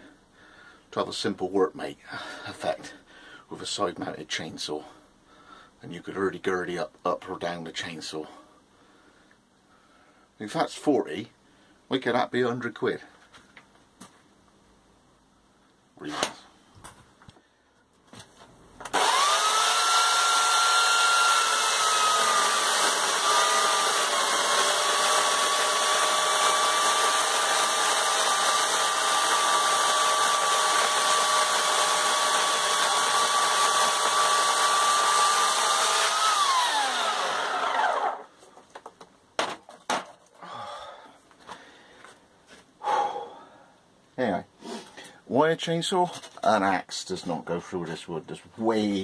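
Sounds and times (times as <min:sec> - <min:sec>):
electric chainsaw cutting log: 0:18.9 - 0:38.3.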